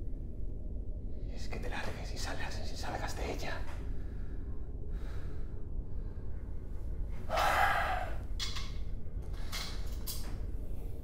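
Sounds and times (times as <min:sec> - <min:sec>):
low background hum: 0:00.0 - 0:11.0
person breathing heavily: 0:03.9 - 0:08.3.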